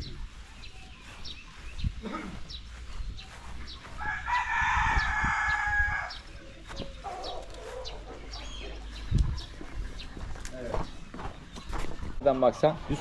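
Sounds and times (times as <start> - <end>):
rooster crowing: 3.9 - 6.3.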